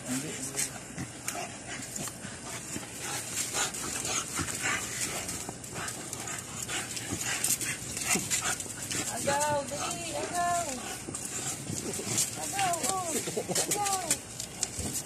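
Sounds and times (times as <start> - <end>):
puppies scuffling on concrete: 0.0 - 15.0
puppy dog sounds: 0.1 - 15.0.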